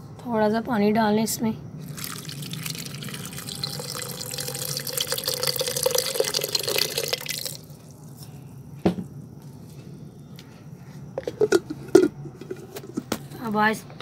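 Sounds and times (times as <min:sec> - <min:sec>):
water pouring into blender jar: 0:01.9 - 0:07.8.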